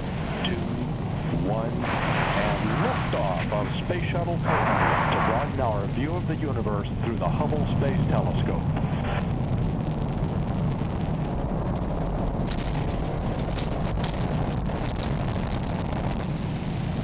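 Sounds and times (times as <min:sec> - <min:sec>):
deep rocket rumble: 0:00.0 - 0:17.0
rocket crackling: 0:00.0 - 0:17.0.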